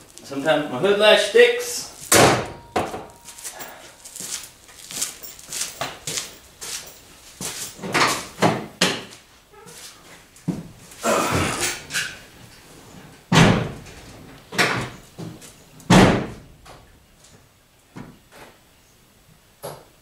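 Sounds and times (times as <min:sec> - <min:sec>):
car door slamming: 0:02.1 - 0:03.1.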